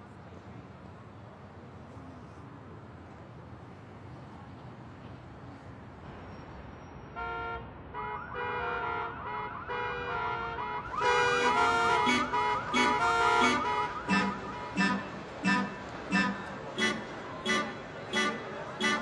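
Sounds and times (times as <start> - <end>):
car alarm warbling and chirping: 12.0 - 17.6.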